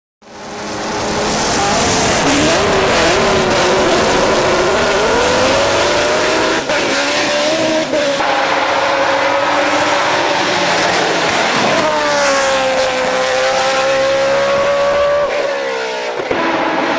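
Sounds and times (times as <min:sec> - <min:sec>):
racing engine at high revs: 0:00.2 - 0:16.9.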